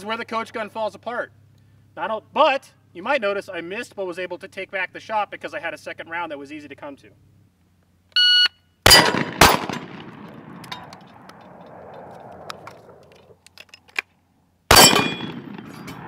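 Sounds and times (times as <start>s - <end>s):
shot timer beep: 8.2s - 8.6s
shotgun shots: 8.8s - 13.0s, 14.7s - 16.0s
gun action clicks: 9.5s - 14.2s.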